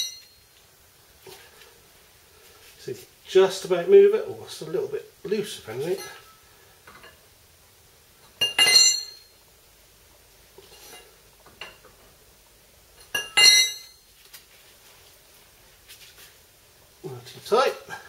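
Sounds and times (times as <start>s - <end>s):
metallic clinks: 0.0s - 0.5s, 8.4s - 9.4s, 13.0s - 14.0s.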